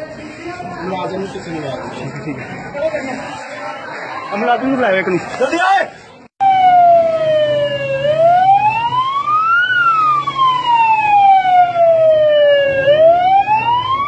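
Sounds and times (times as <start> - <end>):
police siren wailing: 6.4 - 14.0.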